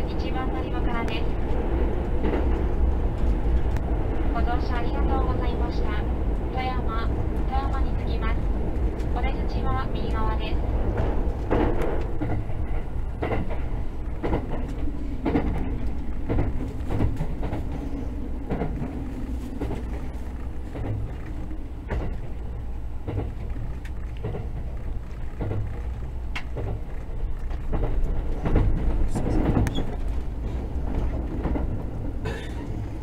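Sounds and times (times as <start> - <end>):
train interior rumble: 0.0 - 33.0
wheels clicking over rail joints: 6.2 - 33.0.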